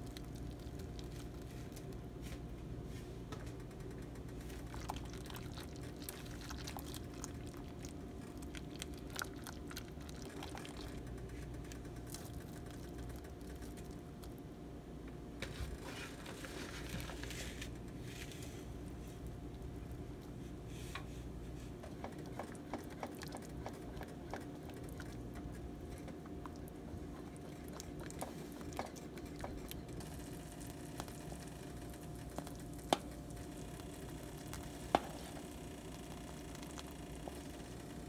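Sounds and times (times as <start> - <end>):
low steady hum: 0.0 - 38.0
whisk and spoon stirring pot: 4.1 - 13.9, 21.4 - 38.0.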